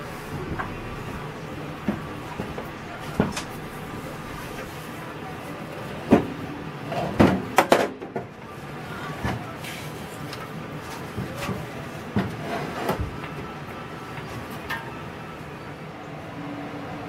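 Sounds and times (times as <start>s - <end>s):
metal scraping: 0.0s - 6.0s
metal clunks and knocks: 0.1s - 4.8s.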